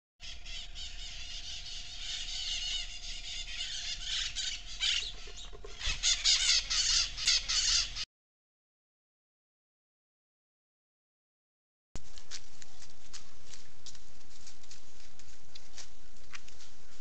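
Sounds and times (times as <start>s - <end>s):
faint steady hum: 0.2s - 8.0s, 12.0s - 17.0s.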